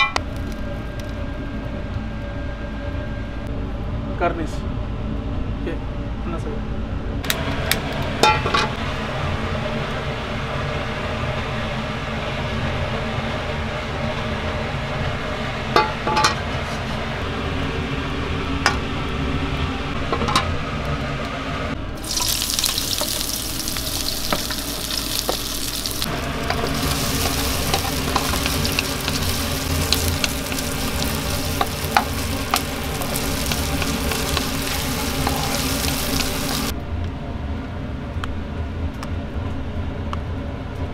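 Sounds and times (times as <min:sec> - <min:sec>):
low steady rumble: 0:00.0 - 0:40.9
hot oil sizzling: 0:22.0 - 0:36.7
wok clicks and knocks: 0:26.4 - 0:35.5
spatula scraping and tapping pan: 0:26.4 - 0:36.3.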